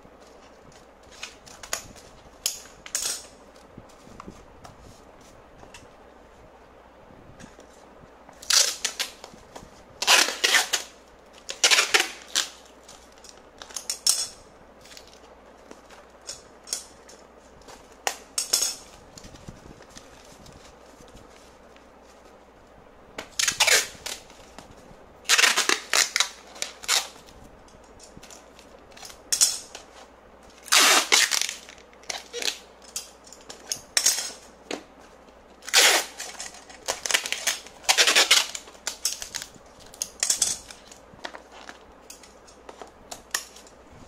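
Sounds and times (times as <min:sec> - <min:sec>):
packing tape ripping off roll: 0:08.4 - 0:09.3, 0:10.0 - 0:14.0, 0:23.2 - 0:24.5, 0:25.2 - 0:27.4, 0:28.1 - 0:34.4, 0:35.6 - 0:42.3.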